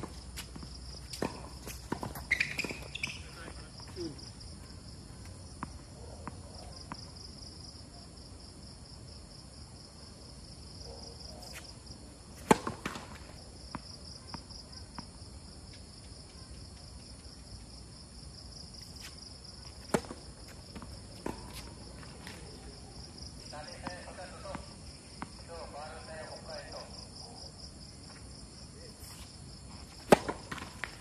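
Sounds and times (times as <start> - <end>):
racket hitting tennis ball: 0.0 - 3.3, 12.4 - 13.8, 19.7 - 21.8, 29.9 - 31.0.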